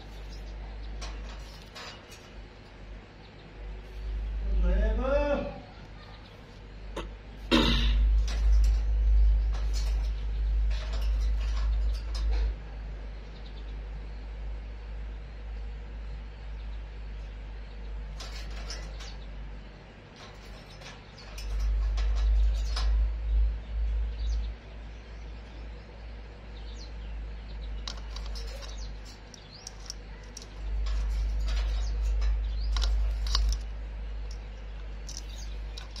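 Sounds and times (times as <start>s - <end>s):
beak and claws scratching wire cage: 0.0s - 4.5s, 5.8s - 13.1s, 17.8s - 24.5s, 27.4s - 36.0s
deep low rumble: 7.8s - 19.6s.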